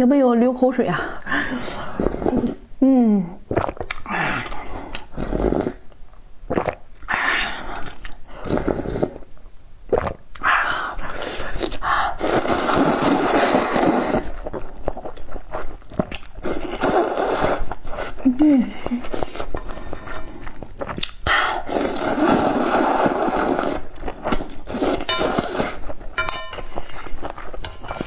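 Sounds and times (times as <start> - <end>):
slurping noodles: 1.4 - 2.6, 3.5 - 5.9, 6.5 - 9.3, 9.9 - 26.0
chewing: 11.6 - 18.2, 18.8 - 28.0.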